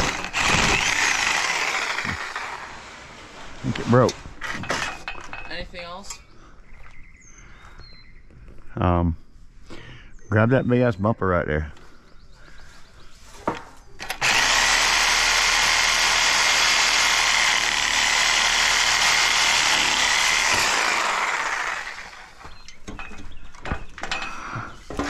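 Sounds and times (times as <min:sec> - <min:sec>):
power tool whining: 0:00.0 - 0:03.6, 0:14.0 - 0:23.1.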